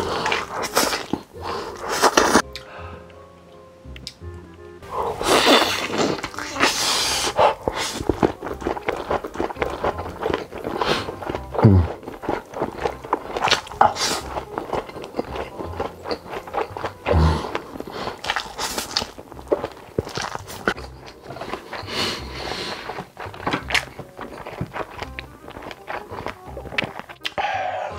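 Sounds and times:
person slurping noodles: 0.0s - 2.4s, 4.8s - 15.5s, 17.0s - 25.0s
chewing and lip-smacking: 0.0s - 3.2s, 5.1s - 27.9s
background music: 0.0s - 27.9s.

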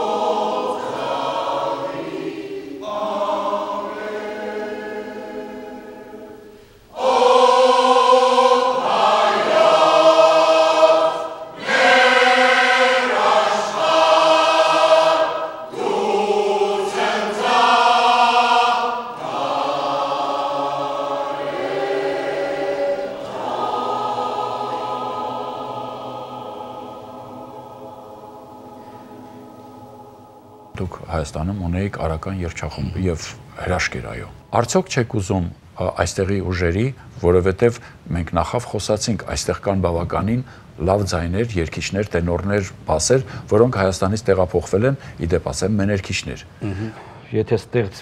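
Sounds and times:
choir singing: 0.0s - 34.6s.

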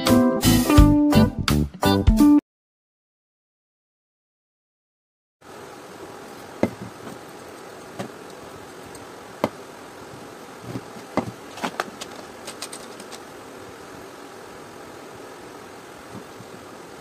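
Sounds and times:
steady background hum: 5.4s - 17.0s
metal parts knocking and clicking: 11.5s - 13.3s.

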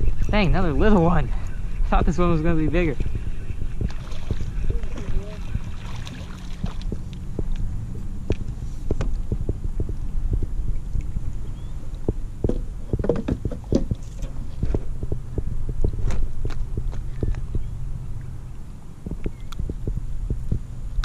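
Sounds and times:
low rumble: 0.0s - 21.0s
knocks and clatter on plastic kayak: 12.0s - 17.4s.

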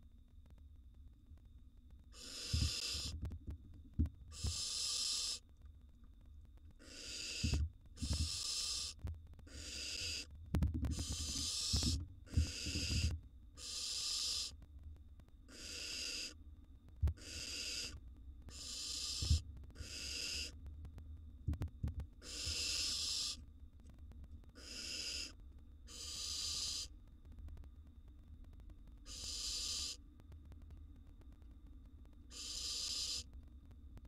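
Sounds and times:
owl nestlings hissing begging calls: 2.1s - 3.1s, 4.3s - 5.4s, 6.8s - 10.3s, 10.9s - 14.6s, 15.5s - 16.4s, 17.2s - 20.6s, 22.2s - 23.4s, 24.6s - 26.9s, 29.0s - 30.0s, 32.3s - 33.3s.

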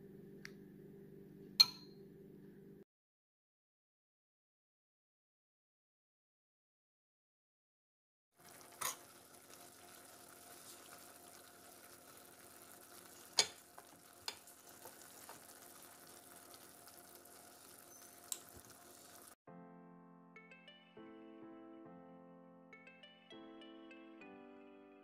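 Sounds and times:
food sizzling in frying pan: 8.4s - 19.4s.

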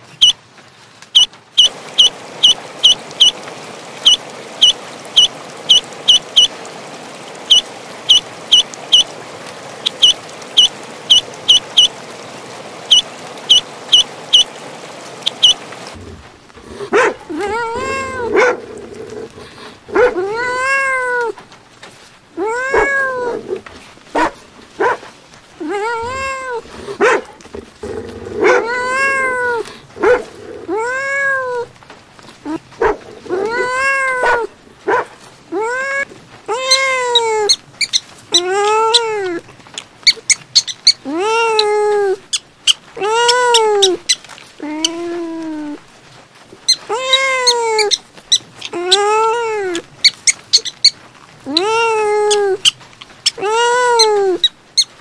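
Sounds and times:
ducklings peeping: 1.2s - 3.4s, 7.5s - 9.1s, 12.9s - 14.5s, 15.3s - 15.6s
kitten meowing: 17.3s - 18.3s, 25.6s - 26.6s, 43.0s - 45.8s, 46.7s - 48.0s, 48.7s - 49.9s, 51.5s - 52.7s, 53.4s - 54.5s.

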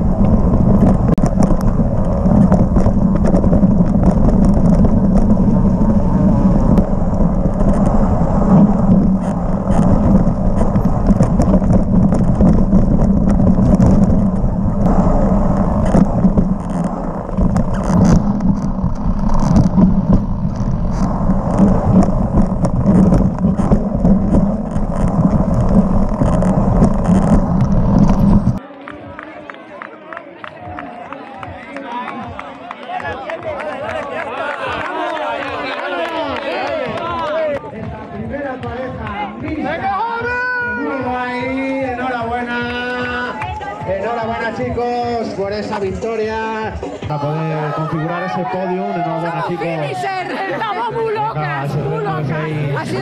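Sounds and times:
bike rattling over bumps: 0.0s - 28.6s
tyres on dirt: 0.0s - 28.6s
wind rush on microphone: 0.0s - 28.6s.

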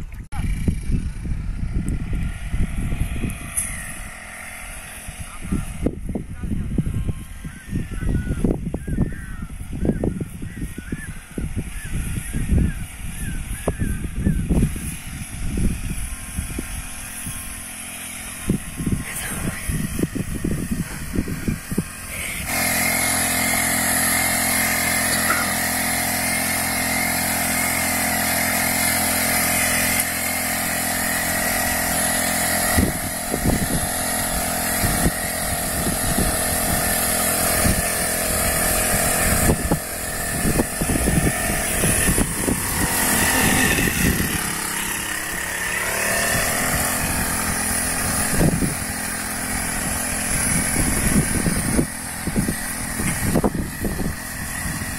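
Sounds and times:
small petrol engine running: 0.0s - 54.9s.

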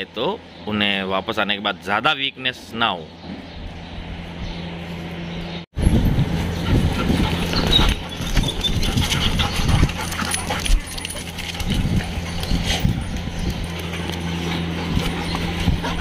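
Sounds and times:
steady low hum: 0.0s - 16.0s
dogs whimpering: 6.4s - 16.0s.

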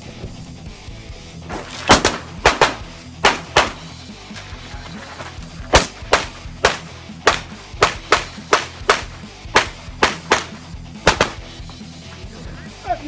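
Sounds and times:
background music: 0.0s - 13.0s
handgun shots: 1.5s - 3.9s, 5.7s - 11.6s.

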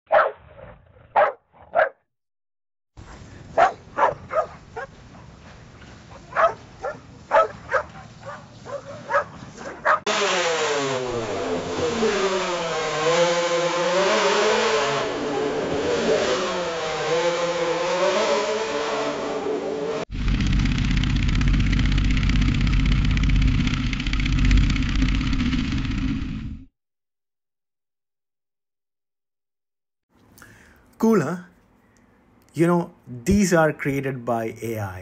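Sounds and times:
dog barking: 0.1s - 0.5s, 1.1s - 2.0s, 3.0s - 5.0s, 6.1s - 10.1s
racing car engine: 9.8s - 26.5s.

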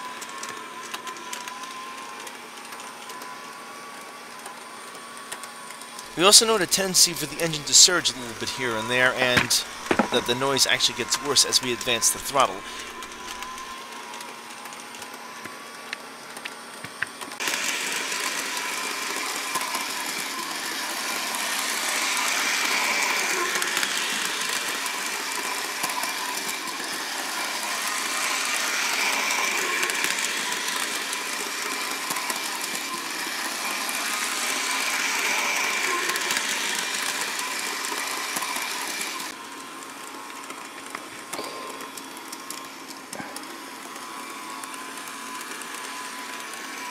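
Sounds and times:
model train motor whine: 0.0s - 46.9s.

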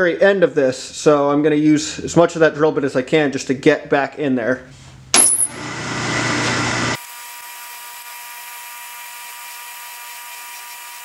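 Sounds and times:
lathe drill cutting metal: 5.5s - 11.0s.

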